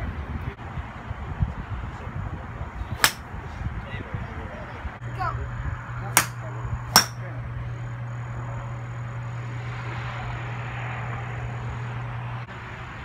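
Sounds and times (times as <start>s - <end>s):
golf club striking ball: 3.0s - 3.2s, 6.2s - 7.3s
steady low hum: 3.0s - 3.5s, 4.9s - 12.9s.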